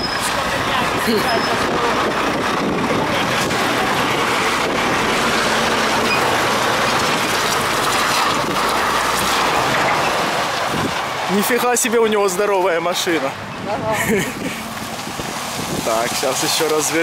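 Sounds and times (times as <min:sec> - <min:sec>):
lorry passing slowly: 0:00.3 - 0:11.3.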